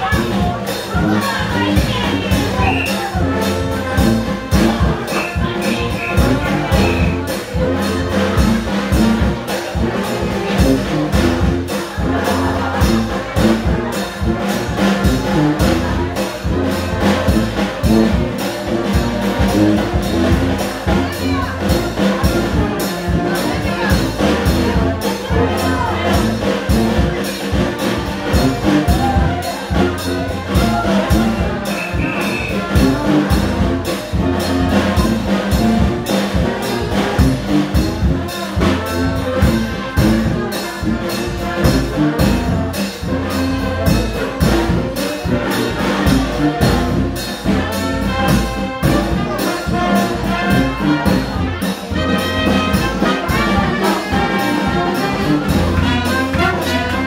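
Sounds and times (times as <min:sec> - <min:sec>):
brass band playing: 0:00.0 - 0:57.0
steady drum beat: 0:00.0 - 0:57.0
trumpet: 0:00.0 - 0:57.0
sousaphone: 0:05.0 - 0:07.2.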